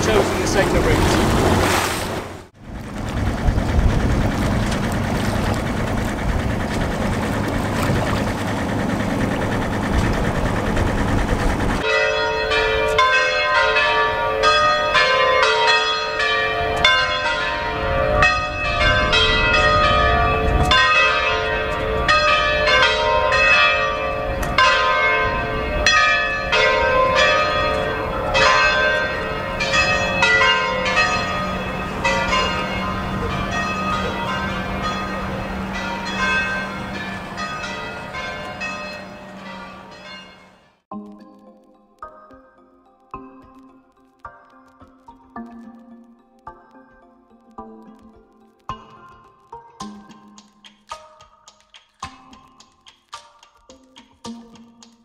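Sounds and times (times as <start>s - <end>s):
wind noise: 0.0s - 11.9s, 16.6s - 39.9s
engine noise: 0.0s - 13.0s, 15.7s - 40.8s
low steady hum: 0.0s - 13.2s
church bells ringing: 4.2s - 40.8s.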